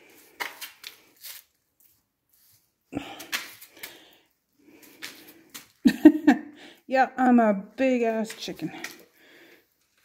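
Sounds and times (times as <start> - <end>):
footsteps scraping on concrete: 0.0 - 4.1, 4.7 - 5.8, 8.1 - 10.0.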